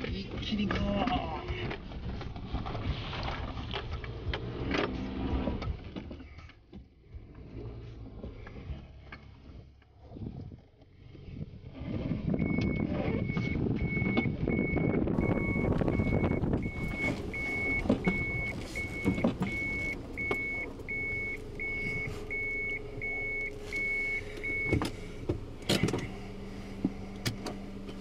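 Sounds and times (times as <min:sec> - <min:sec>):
car engine: 0:00.0 - 0:28.0
car rattling over rough track: 0:11.5 - 0:28.0
reverse warning beeper: 0:12.4 - 0:25.2.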